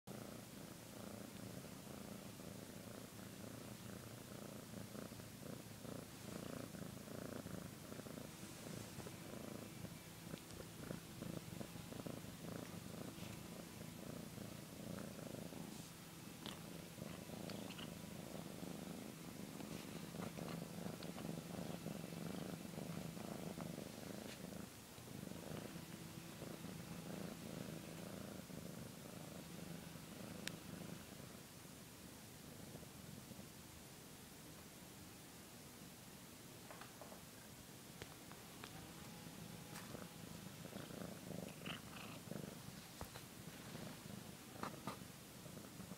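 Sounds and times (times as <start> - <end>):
cat purring: 0.1 - 34.6, 36.7 - 45.9.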